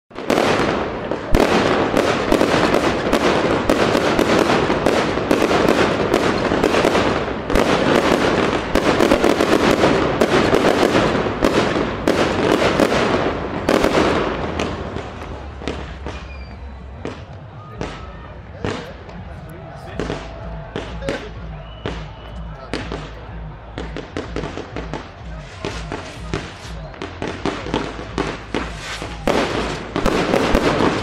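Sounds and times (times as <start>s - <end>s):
fireworks bangs and crackling: 0.1s - 31.0s.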